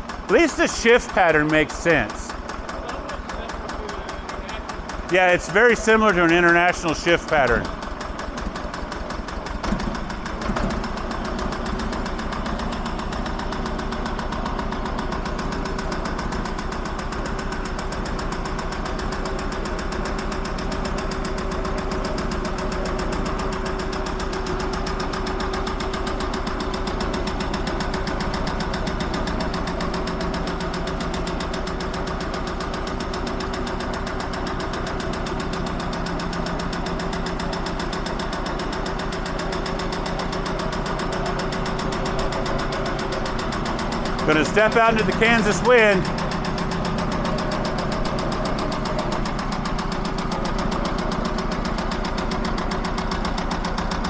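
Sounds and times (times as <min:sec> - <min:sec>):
tractor diesel engine running: 0:00.0 - 0:54.0
loud clunks: 0:08.3 - 0:11.9.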